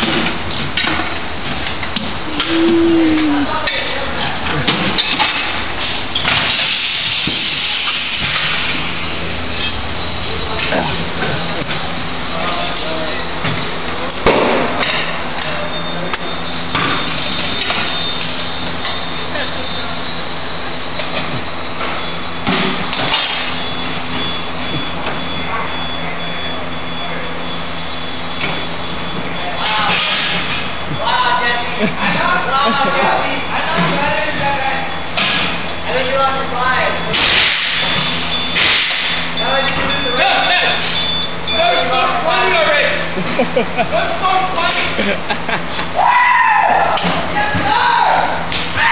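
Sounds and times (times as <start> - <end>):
machinery humming: 0.0 - 46.2
compressed air hissing: 6.5 - 12.5.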